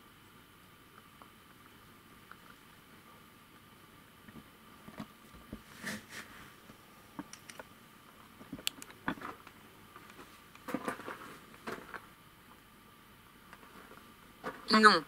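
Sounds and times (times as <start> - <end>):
faint steady hum: 0.0 - 15.0
small clicks and rustles: 4.2 - 12.1, 13.5 - 14.7.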